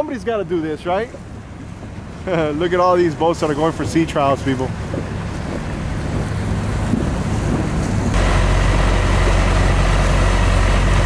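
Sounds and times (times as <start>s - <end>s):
water noise: 0.0s - 11.0s
outboard motor running: 0.8s - 11.0s
wind on microphone: 3.5s - 8.3s.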